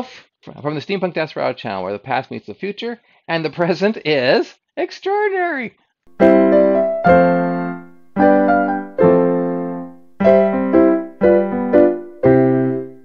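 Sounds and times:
keyboard chords ringing: 6.1s - 13.0s.

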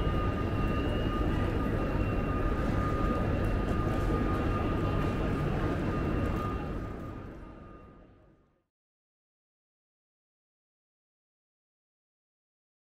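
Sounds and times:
high-pitched whine: 0.0s - 8.2s.

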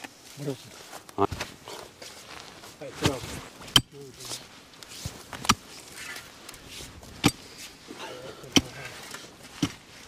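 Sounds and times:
shovel striking soil: 3.0s - 6.1s, 6.7s - 7.4s, 8.5s - 8.8s.

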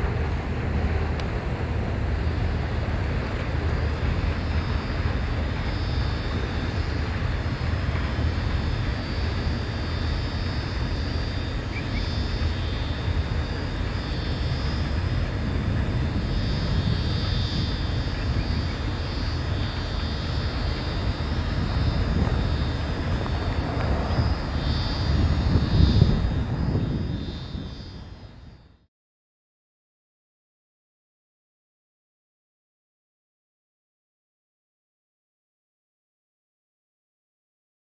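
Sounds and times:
freight train rumbling: 0.0s - 28.7s.

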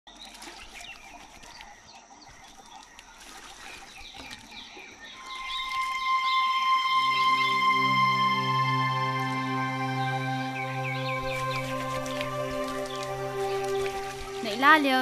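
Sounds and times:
water splashing into plastic bucket: 0.1s - 6.0s, 11.2s - 15.0s
small birds chirping: 0.1s - 7.7s, 9.9s - 15.0s
background music held note: 5.8s - 15.0s.

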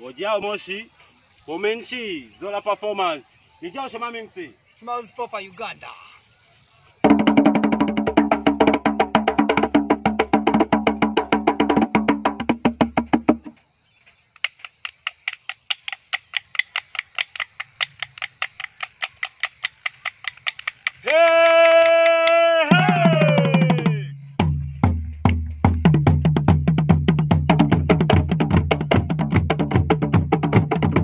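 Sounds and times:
wooden sticks clicking: 14.3s - 22.5s.

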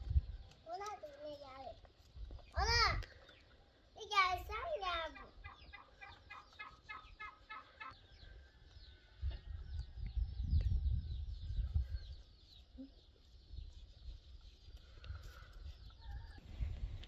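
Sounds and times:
chicken clucking: 5.2s - 8.1s.

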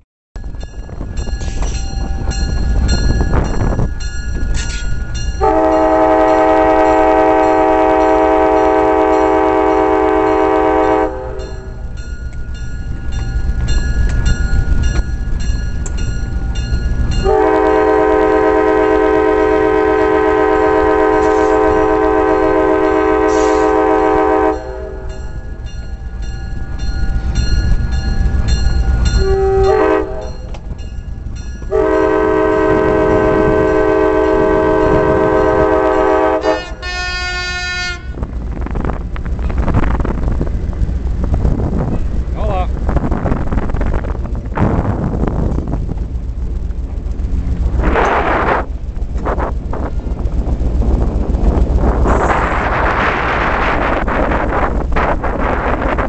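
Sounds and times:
diesel engine low rumble: 0.4s - 56.0s
locomotive air horn blasts: 5.4s - 11.7s, 17.2s - 25.2s, 29.2s - 30.5s, 31.7s - 38.2s.

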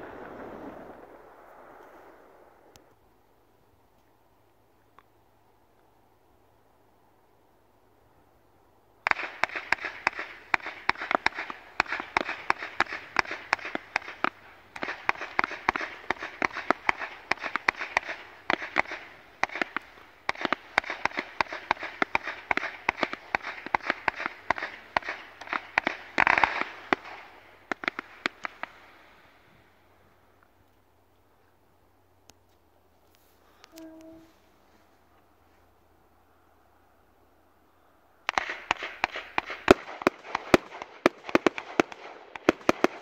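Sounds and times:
firework cracks and bangs: 0.0s - 2.4s, 9.1s - 29.1s, 38.3s - 43.0s.

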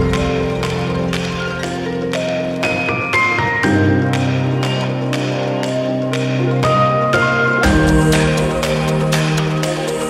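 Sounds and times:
background music with plucked melody: 0.0s - 10.0s.

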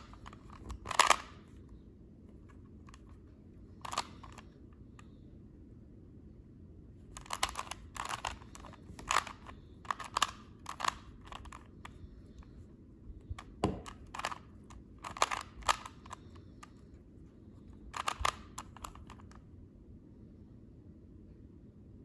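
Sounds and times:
puzzle cube clicking and rattling: 0.0s - 1.6s, 2.3s - 4.6s, 7.1s - 12.6s, 13.3s - 16.9s, 17.6s - 19.4s.

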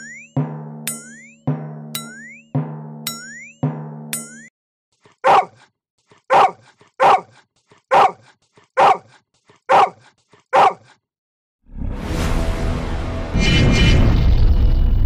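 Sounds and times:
dog barking: 5.2s - 11.0s.

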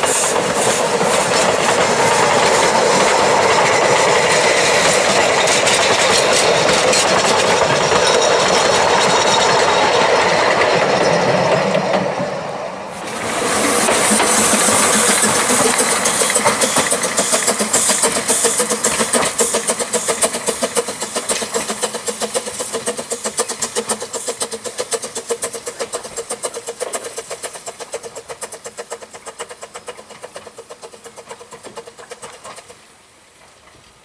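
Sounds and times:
steam locomotive exhaust chuffs: 0.0s - 33.8s.

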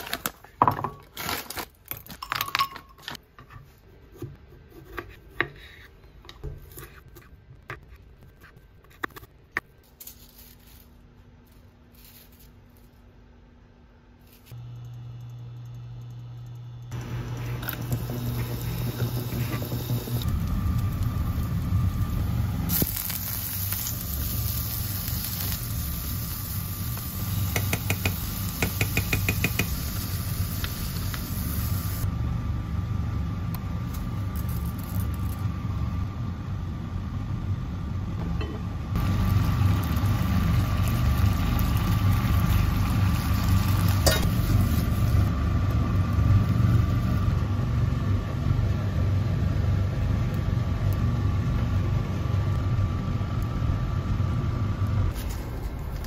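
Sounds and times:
steady low hum: 10.8s - 56.0s
pot of water boiling: 16.9s - 32.1s, 39.0s - 48.0s
garlic sizzling in oil: 17.0s - 32.1s, 39.0s - 47.3s.

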